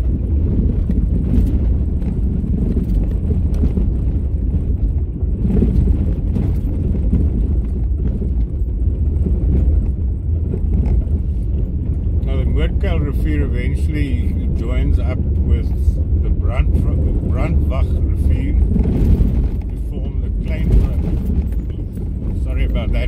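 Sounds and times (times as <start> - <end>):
car driving on gravel: 0.0 - 23.0
knocks and rattles: 17.0 - 23.0.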